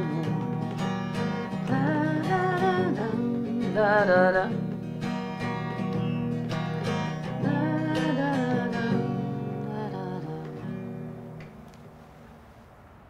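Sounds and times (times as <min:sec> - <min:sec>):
person singing: 0:00.0 - 0:00.8, 0:01.4 - 0:04.8, 0:07.2 - 0:11.0
acoustic guitar strumming: 0:00.0 - 0:12.4.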